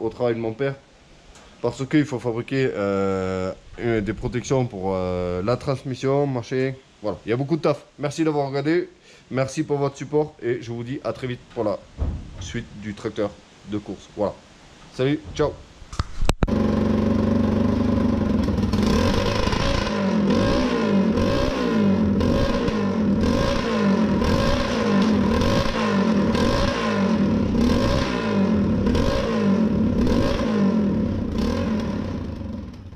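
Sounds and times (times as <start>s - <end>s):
mower engine revving in surges: 16.5s - 32.9s.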